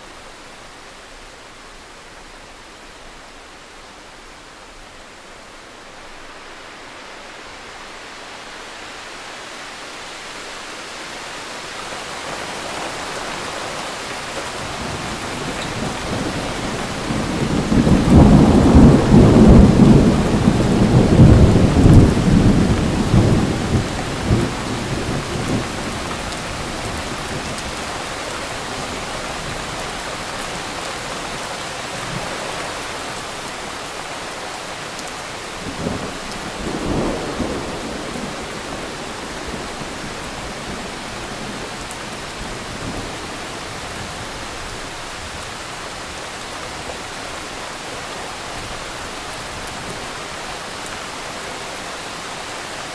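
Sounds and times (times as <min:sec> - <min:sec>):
steady rain: 0:00.0 - 0:52.9
thunder rolling: 0:14.7 - 0:27.6.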